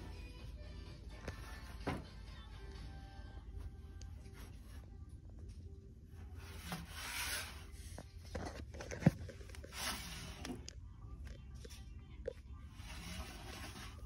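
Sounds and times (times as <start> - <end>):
ceramic rubbing and scraping: 6.2 - 10.6, 12.8 - 14.0.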